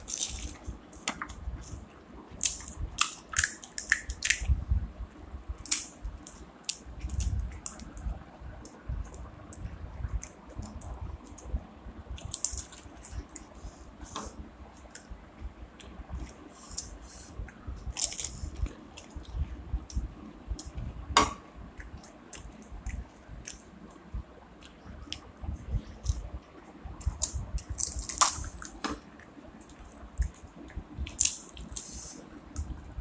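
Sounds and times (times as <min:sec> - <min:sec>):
crisp shells crunching: 0:00.0 - 0:00.6.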